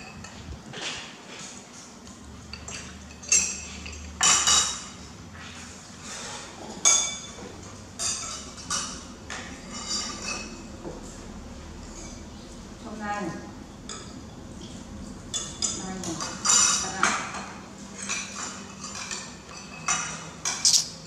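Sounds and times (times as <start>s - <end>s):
metal spoons clinking on ceramic plates: 2.5s - 5.1s, 6.8s - 10.7s, 15.3s - 21.0s.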